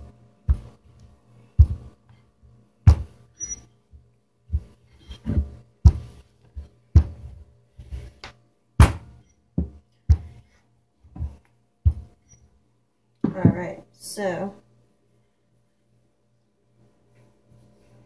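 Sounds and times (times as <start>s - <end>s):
rolling pin knocking on dough: 0.4s - 0.8s, 2.8s - 3.2s, 5.3s - 7.3s, 8.8s - 10.4s.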